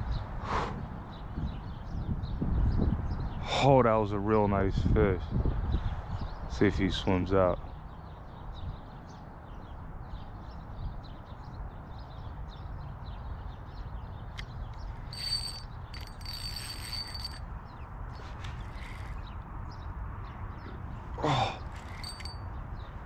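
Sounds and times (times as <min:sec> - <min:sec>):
fishing reel whirring: 0:15.0 - 0:17.4, 0:18.2 - 0:19.2, 0:21.7 - 0:22.4.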